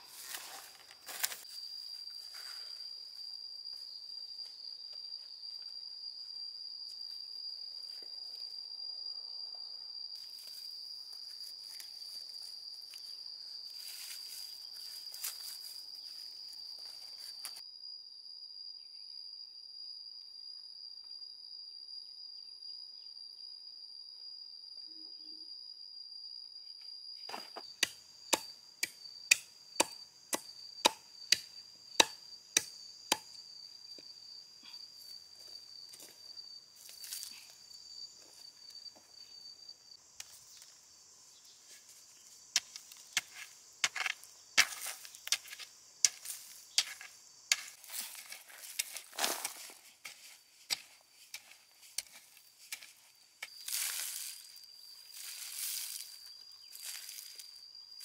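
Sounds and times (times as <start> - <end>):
high insect drone: 0.0 - 58.0
machete chopping into wood: 29.3 - 33.3.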